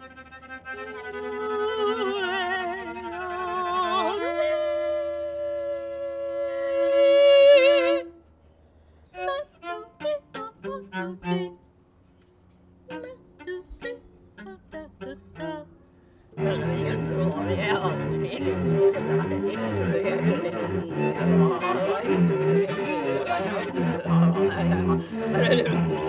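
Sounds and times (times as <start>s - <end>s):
cello bowed with vibrato: 0.0s - 8.1s, 9.2s - 11.6s, 12.8s - 26.0s.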